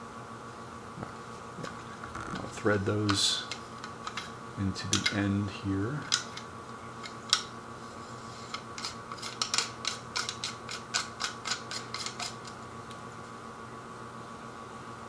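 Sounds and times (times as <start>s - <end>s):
metal rings screwed together clicking: 3.0s - 4.3s, 4.9s - 5.2s, 6.0s - 6.4s, 8.4s - 12.6s.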